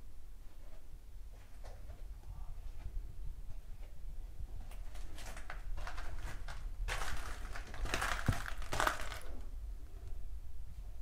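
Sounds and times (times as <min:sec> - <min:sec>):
footsteps crunching over debris: 0:04.8 - 0:09.4.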